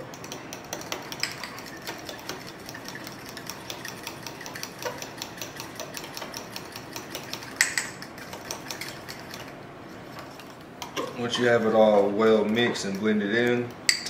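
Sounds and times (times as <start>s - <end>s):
fork scraping glass bowl: 1.2s - 10.6s.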